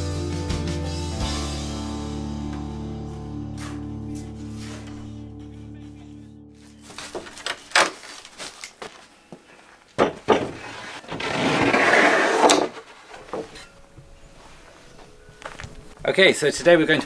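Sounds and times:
board scraping across bench: 0:03.6 - 0:05.2, 0:10.0 - 0:13.7
wooden board knocking on workbench: 0:10.0 - 0:10.6.

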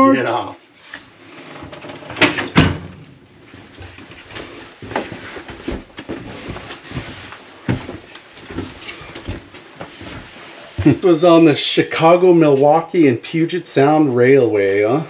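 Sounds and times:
footsteps thudding on floor: 0:04.8 - 0:10.9.

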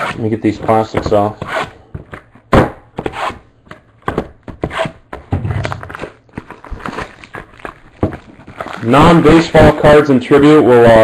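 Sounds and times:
plastic wrap tearing and crinkling: 0:05.6 - 0:09.7.

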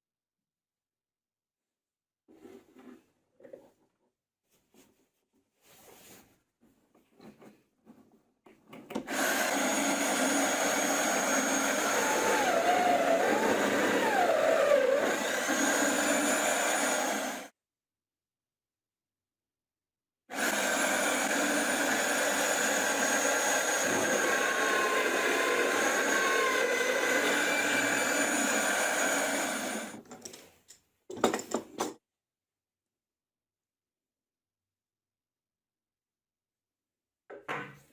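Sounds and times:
router motor whining: 0:09.0 - 0:17.5, 0:20.3 - 0:30.0.

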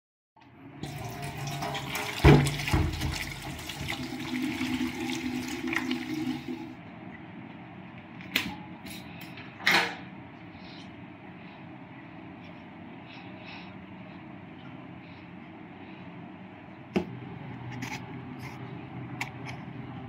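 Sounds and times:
tap water running into sink: 0:00.8 - 0:06.7.

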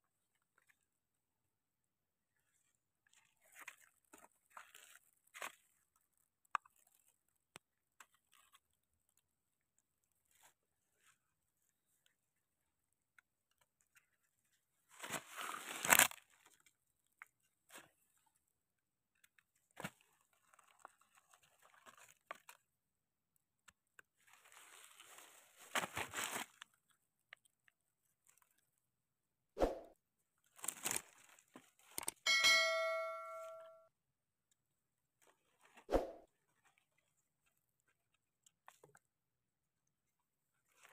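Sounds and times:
short bright chime: 0:32.3 - 0:33.8.

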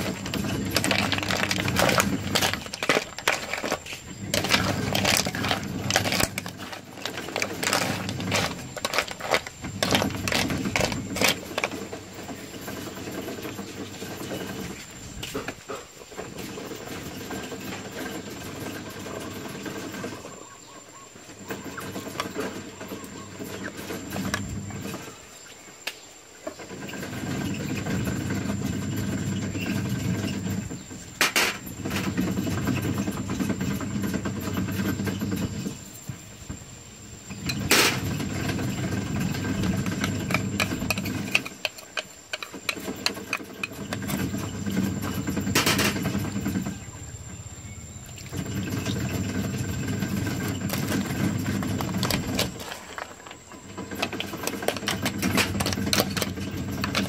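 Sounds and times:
snail shells rattling in a metal wok: 0:00.0 - 0:11.9, 0:39.5 - 0:44.3.

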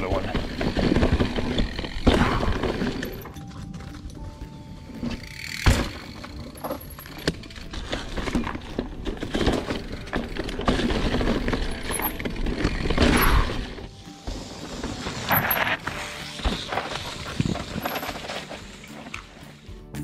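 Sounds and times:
bike rattling: 0:00.0 - 0:19.8
bike tyre noise: 0:00.0 - 0:20.0
bike landing thump: 0:05.6 - 0:06.3.

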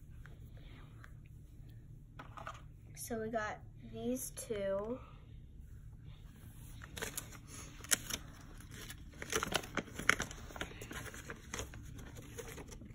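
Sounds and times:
packaging crinkling: 0:06.8 - 0:12.9.

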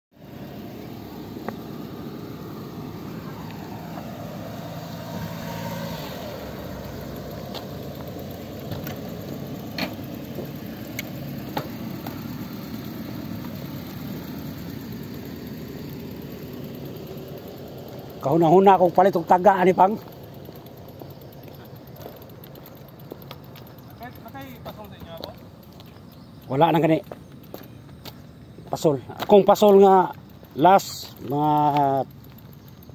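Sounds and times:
vehicle engine running: 0:00.1 - 0:32.9
sharp clicks: 0:07.2 - 0:13.6, 0:16.8 - 0:28.3, 0:29.1 - 0:32.9.

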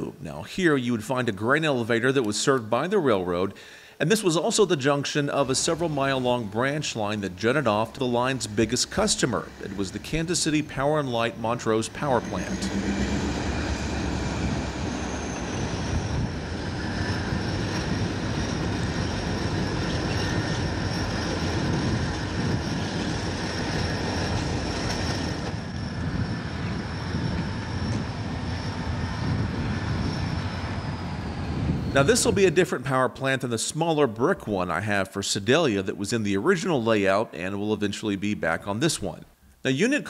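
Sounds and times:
diesel locomotive running: 0:05.3 - 0:32.6.

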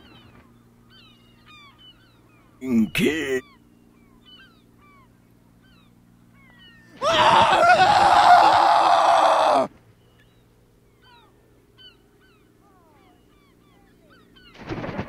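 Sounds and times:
small birds chirping: 0:00.0 - 0:07.0, 0:09.9 - 0:14.6.

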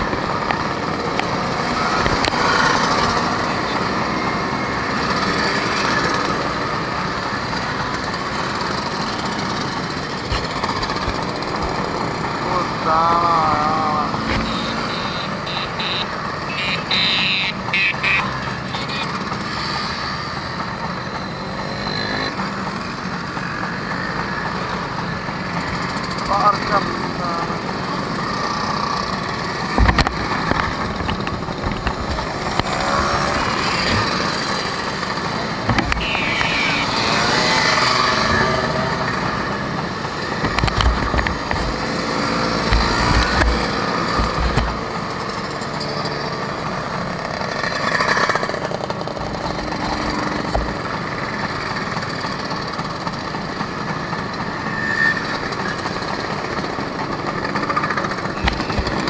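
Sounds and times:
scooters riding past: 0:19.1 - 0:59.0.

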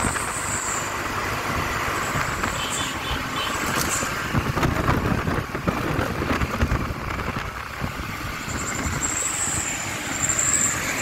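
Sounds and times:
light truck on road: 0:00.0 - 0:11.0
wind buffeting microphone: 0:03.6 - 0:09.7.

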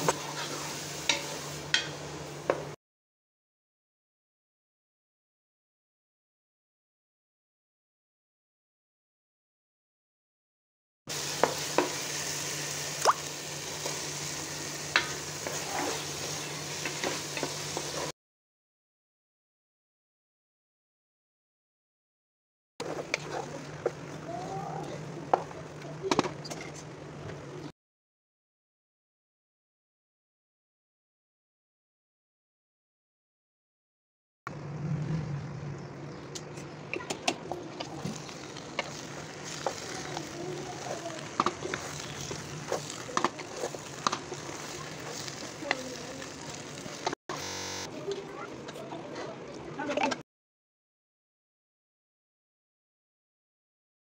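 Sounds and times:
spatula scraping a pan: 0:00.0 - 0:02.0, 0:13.6 - 0:18.1, 0:22.8 - 0:24.0, 0:37.9 - 0:47.2
vegetables sizzling in a pan: 0:00.0 - 0:02.8, 0:11.1 - 0:18.1, 0:37.9 - 0:47.9.

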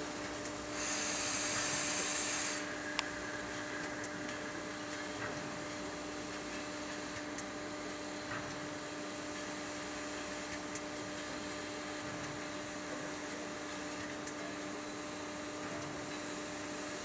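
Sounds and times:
low hum: 0:00.0 - 0:07.2
steam locomotive hissing: 0:00.7 - 0:06.9.

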